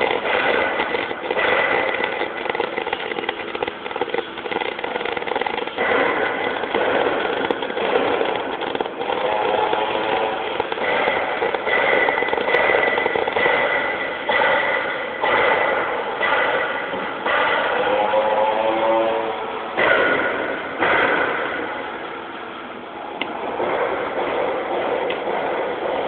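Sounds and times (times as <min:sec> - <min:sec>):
welding arc crackling buzz: 0:00.0 - 0:26.0.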